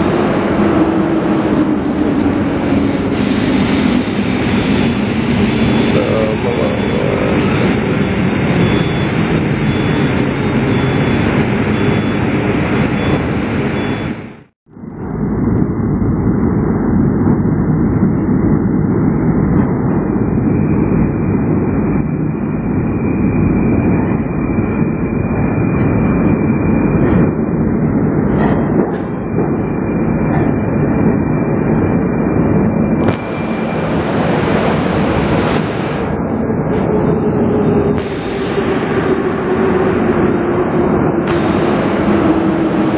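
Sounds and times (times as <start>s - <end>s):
high hiss: 0.0s - 5.0s, 38.0s - 39.3s, 41.3s - 42.9s
metro train rumbling: 0.0s - 42.9s.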